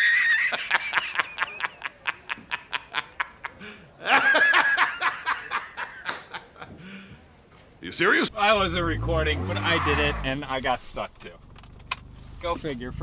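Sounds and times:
man laughing hysterically: 0:00.0 - 0:06.8.

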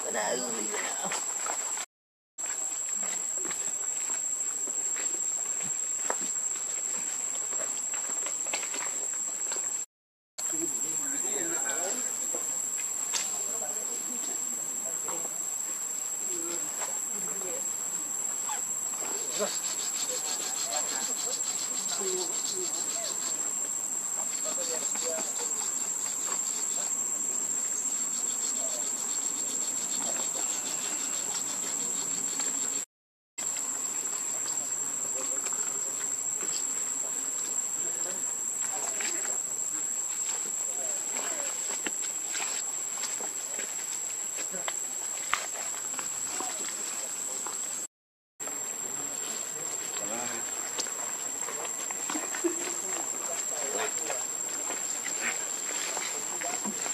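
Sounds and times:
insects buzzing: 0:02.5 - 0:56.9
high-pitched insect drone: 0:16.2 - 0:32.9.

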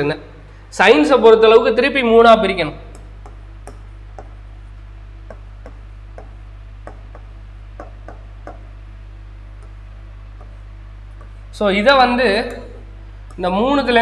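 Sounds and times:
low mains hum: 0:00.0 - 0:14.0
stylus tapping on glass screen: 0:02.9 - 0:04.4, 0:05.2 - 0:08.8, 0:09.6 - 0:11.4.

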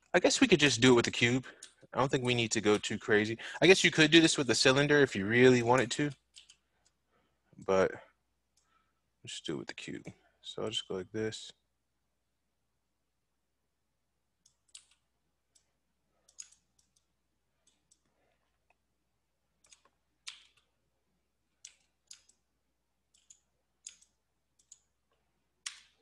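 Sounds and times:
mouse and keyboard clicking: 0:06.1 - 0:06.6, 0:14.4 - 0:15.7, 0:16.3 - 0:18.1, 0:19.6 - 0:20.7, 0:21.6 - 0:22.4, 0:23.1 - 0:24.9.

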